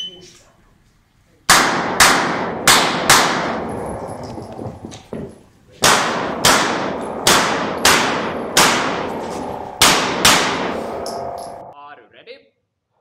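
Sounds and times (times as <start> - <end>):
pistol shots: 1.5 - 3.6, 5.8 - 9.1, 9.8 - 10.7.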